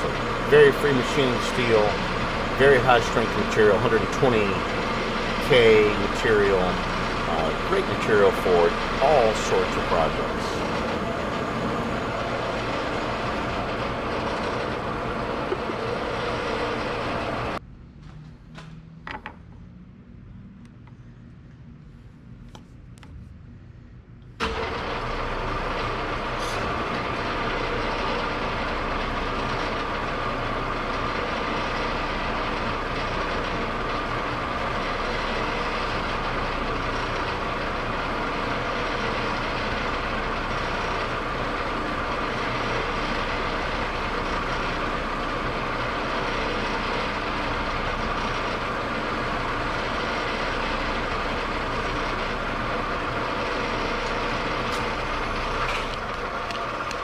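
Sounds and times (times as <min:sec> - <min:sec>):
metal lathe humming and whirring: 0:00.0 - 0:17.6, 0:24.4 - 0:57.0.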